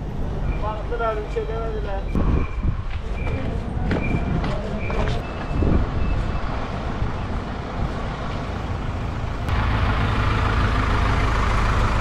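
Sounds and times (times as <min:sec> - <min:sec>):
heavy vehicle engine running: 0:06.0 - 0:12.0.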